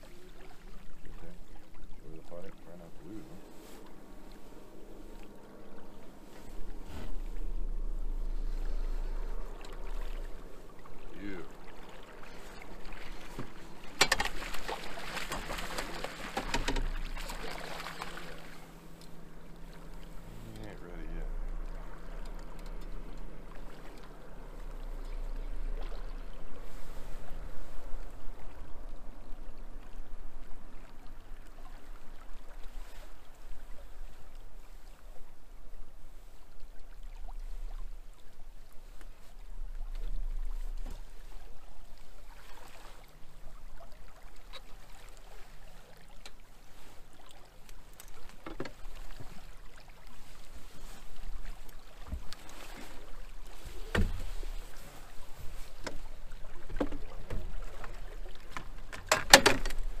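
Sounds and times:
low hum: 0.0 - 58.9
river water: 0.0 - 60.0
wind: 0.0 - 60.0
gear knocking against boat: 13.3 - 17.2, 58.4 - 60.0.

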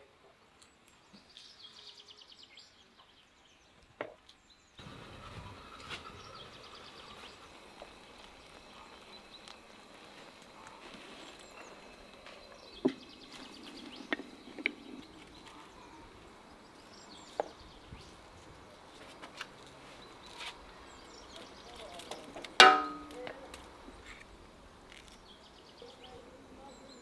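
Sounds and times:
small birds trilling: 0.5 - 19.0, 19.7 - 27.0
glass pan lid clinking: 22.6 - 23.1.

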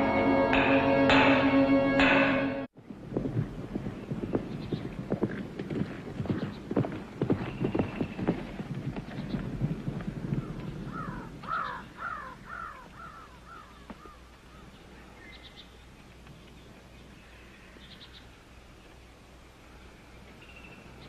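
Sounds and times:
crow cawing: 10.9 - 14.2.

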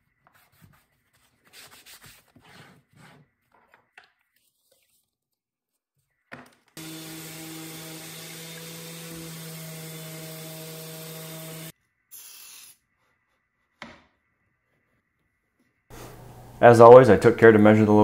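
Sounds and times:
random orbit sander humming: 6.8 - 11.7.

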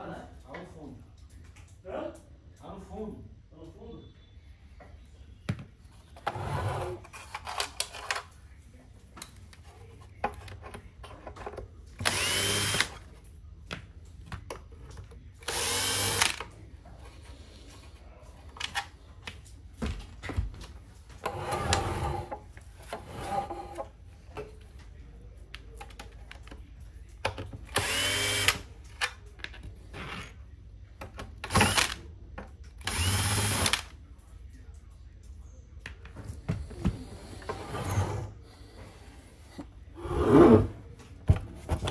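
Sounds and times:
cordless drill driving screws: 12.0 - 13.0, 15.4 - 16.4, 27.8 - 28.6, 31.5 - 31.9, 32.8 - 33.8.

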